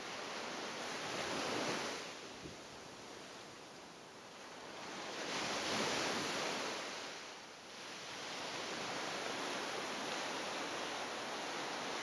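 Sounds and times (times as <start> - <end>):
ocean waves breaking on beach: 0.0 - 12.0.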